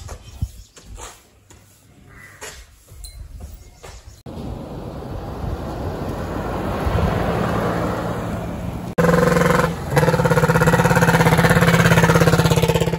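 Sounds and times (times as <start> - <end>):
motor vehicle running: 4.3 - 12.9
three-wheeler engine chugging: 9.0 - 12.9.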